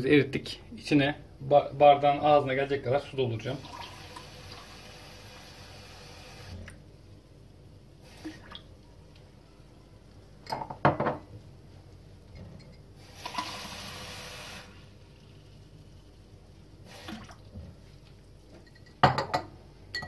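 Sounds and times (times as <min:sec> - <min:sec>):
glass knocking on hard surface: 0:10.5 - 0:11.2, 0:19.0 - 0:20.0.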